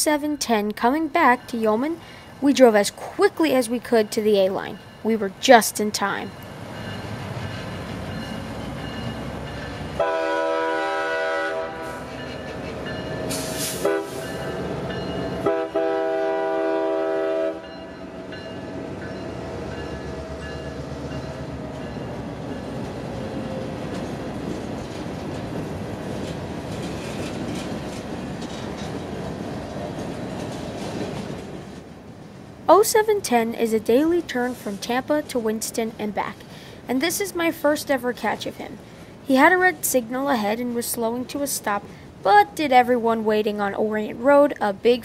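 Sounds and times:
locomotive air horn blasts: 0:10.0 - 0:12.1, 0:13.4 - 0:14.3, 0:15.4 - 0:17.8
train wheels clacking over rails: 0:19.7 - 0:31.9.

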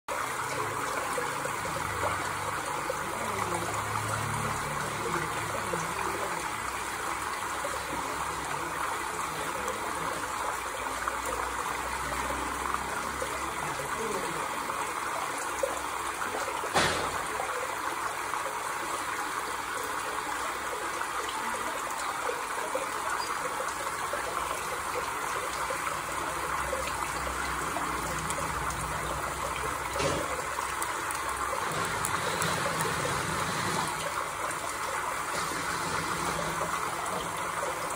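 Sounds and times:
water trickling: 0:00.1 - 0:37.9.

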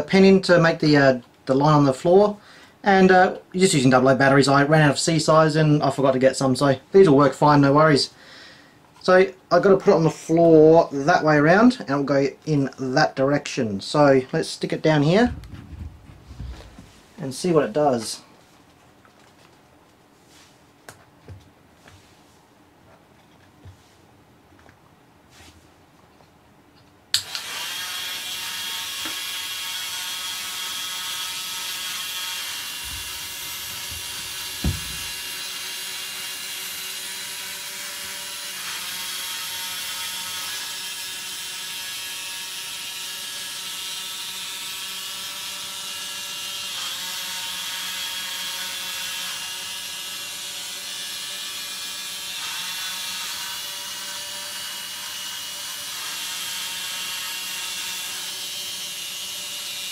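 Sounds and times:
low thump: 0:15.2 - 0:16.9, 0:32.9 - 0:35.2.

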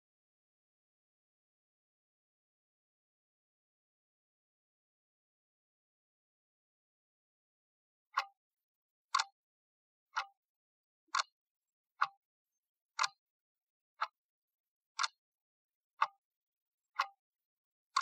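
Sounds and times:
clock ticking: 0:08.2 - 0:08.4, 0:09.1 - 0:09.4, 0:10.2 - 0:10.4, 0:11.0 - 0:11.3, 0:12.0 - 0:12.2, 0:13.0 - 0:13.2, 0:14.0 - 0:14.2, 0:15.0 - 0:15.2, 0:16.0 - 0:16.2, 0:17.0 - 0:17.2.

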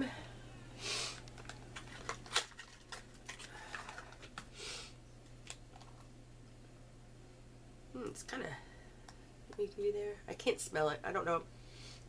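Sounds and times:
container clicks and packaging rustles: 0:01.2 - 0:04.5.

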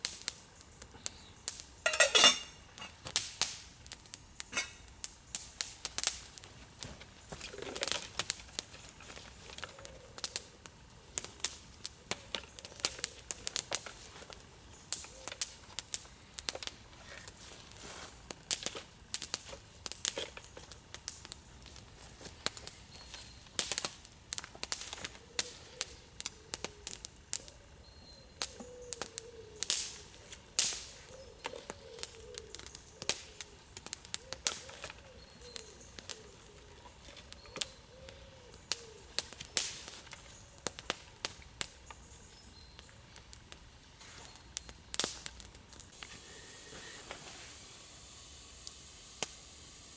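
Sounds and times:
campfire crackling and popping: 0:00.0 - 0:49.9.

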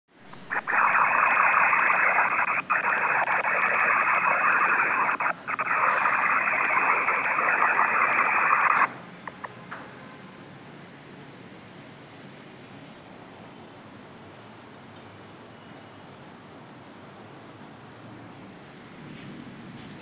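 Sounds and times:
static hiss: 0:00.1 - 0:09.5
faint clicks: 0:00.3 - 0:09.9.

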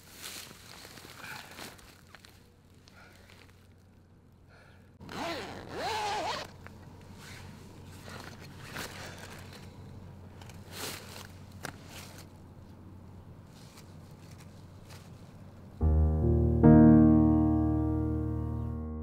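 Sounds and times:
plastic bag zipper pulled: 0:05.0 - 0:06.5.

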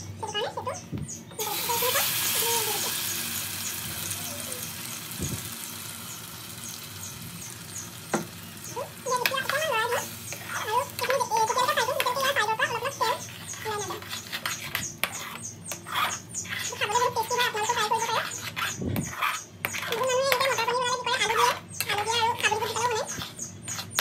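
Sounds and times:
high-pitched warbling voice: 0:00.2 - 0:03.0, 0:04.1 - 0:05.3
paste sizzling in hot oil: 0:01.4 - 0:12.4
metal spoon stirring in a pan: 0:01.4 - 0:24.0.

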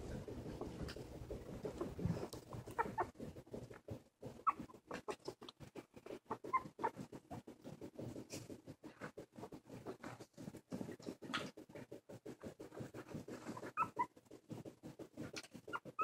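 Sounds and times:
soft ticking and scuffling: 0:00.0 - 0:16.0
puppy squeaking: 0:02.7 - 0:03.2, 0:04.4 - 0:05.3, 0:06.2 - 0:07.0, 0:13.4 - 0:14.2, 0:15.6 - 0:16.0.

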